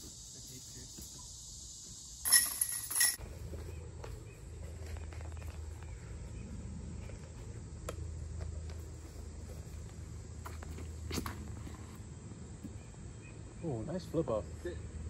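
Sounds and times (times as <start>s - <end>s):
metallic jingling clank: 2.2s - 3.2s.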